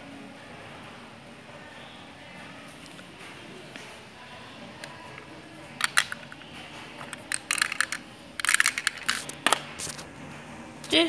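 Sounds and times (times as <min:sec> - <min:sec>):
plastic bricks clicking: 0:05.8 - 0:06.4, 0:07.0 - 0:09.6.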